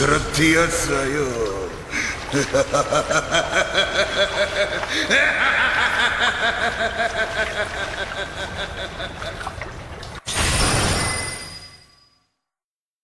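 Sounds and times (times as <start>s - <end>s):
man laughing villainously: 2.2s - 9.5s.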